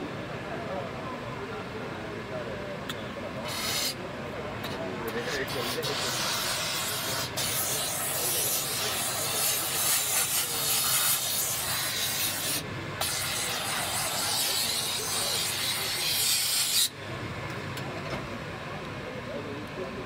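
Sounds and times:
steam gun hissing: 3.4s - 4.0s, 5.2s - 16.9s.

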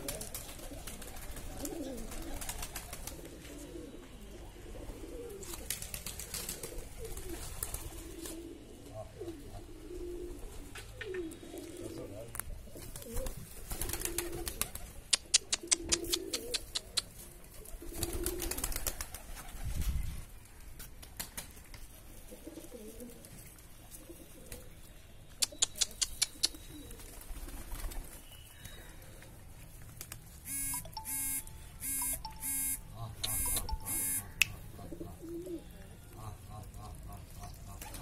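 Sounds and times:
pigeons cooing: 0.0s - 12.1s, 12.7s - 19.5s, 34.6s - 38.0s
sharp clicks: 15.2s - 17.1s, 31.8s - 34.6s
electronic beeping: 30.5s - 34.4s.

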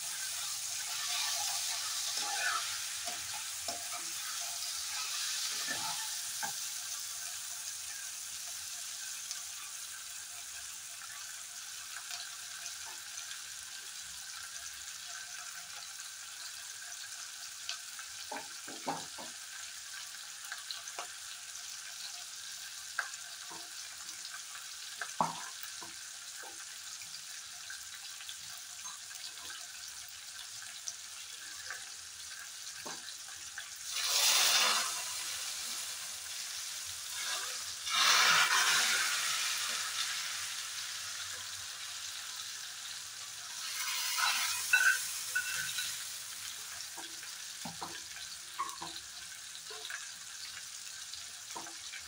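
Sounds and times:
spices sizzling in hot oil: 0.0s - 52.0s
hot oil poured into pot: 31.4s - 50.1s.

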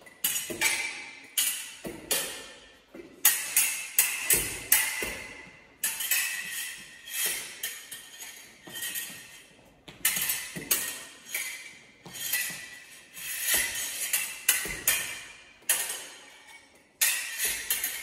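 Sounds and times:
fencing blades clinking: 0.0s - 18.0s.

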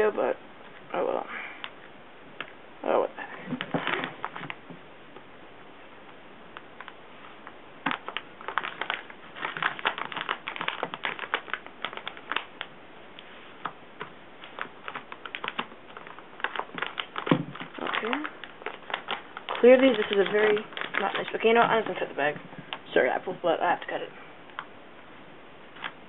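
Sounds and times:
scissors snipping packaging: 16.4s - 22.0s.

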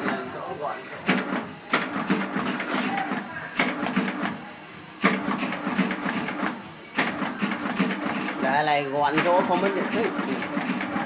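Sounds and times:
sharp machine clack: 1.0s - 4.4s, 5.0s - 11.0s
machine clattering: 5.0s - 11.0s.

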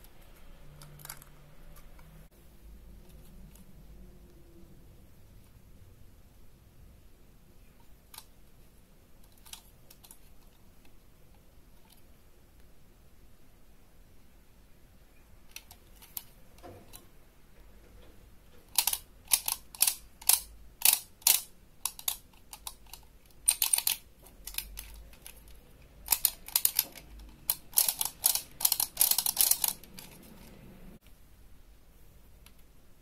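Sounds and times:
plastic toy parts clicking: 0.8s - 2.0s, 9.2s - 10.5s, 15.5s - 17.0s, 18.6s - 30.5s.

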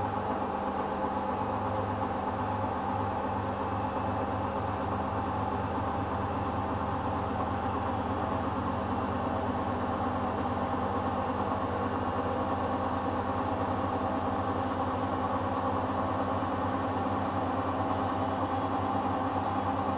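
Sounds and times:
washing machine spinning: 2.2s - 19.9s.

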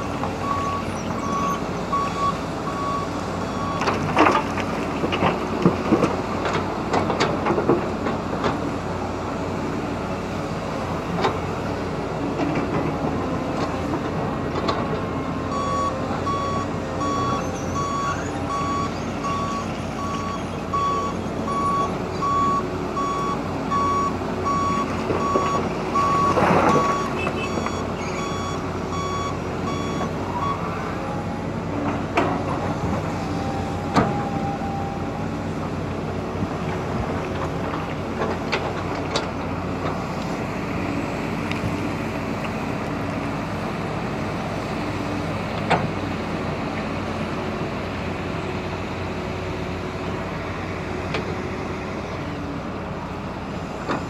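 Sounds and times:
excavator diesel engine running: 0.0s - 54.0s
back-up alarm beeping: 0.4s - 3.8s, 15.5s - 30.6s.

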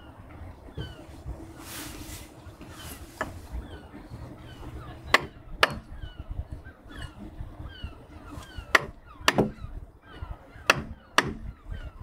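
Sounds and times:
mallet striking caulking iron: 5.1s - 5.9s, 8.7s - 9.6s, 10.7s - 11.5s.

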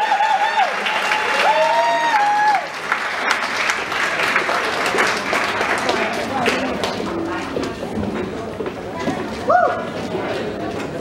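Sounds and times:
people cheering: 0.0s - 6.6s, 9.5s - 10.0s
audience clapping: 0.0s - 7.8s.

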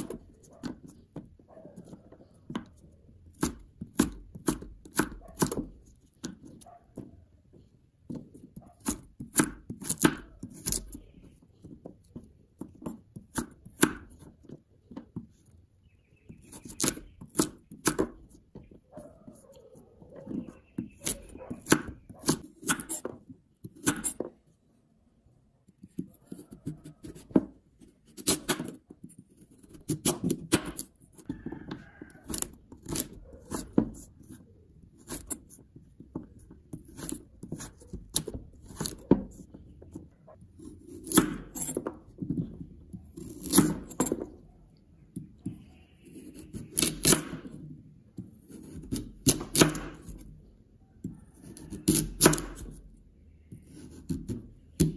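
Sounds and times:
knife slicing sweet potato: 8.2s - 11.2s, 20.2s - 24.3s, 25.8s - 28.8s, 29.4s - 31.0s, 32.0s - 34.4s, 36.6s - 39.6s, 40.6s - 42.0s, 43.0s - 44.3s, 45.7s - 47.6s, 48.2s - 50.3s, 51.1s - 52.9s, 53.5s - 54.9s.

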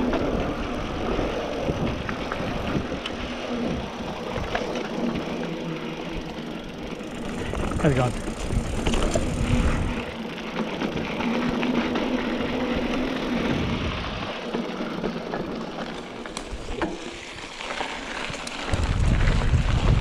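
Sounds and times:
wind rumble on microphone: 0.0s - 4.8s, 7.2s - 10.2s, 12.3s - 14.4s, 18.2s - 20.0s
bike tyres rolling over dirt: 0.0s - 20.0s
bike knocks and rattles: 3.8s - 20.0s.

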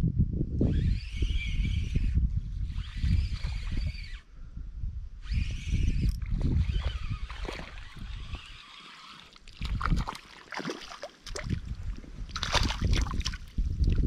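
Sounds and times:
fish thrashing splashing water: 9.0s - 11.7s, 12.3s - 13.5s.

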